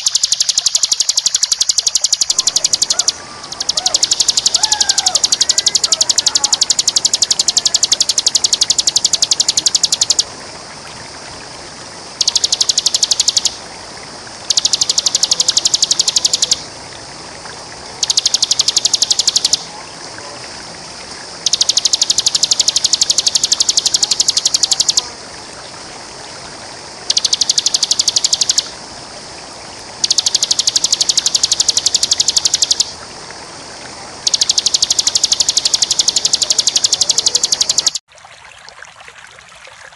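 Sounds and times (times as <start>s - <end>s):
bird singing rapid high notes: 0.0s - 10.3s, 12.2s - 13.6s, 14.5s - 16.7s, 18.0s - 19.7s, 21.4s - 25.1s, 27.0s - 28.7s, 30.0s - 33.0s, 34.3s - 38.0s
running water: 0.0s - 39.9s.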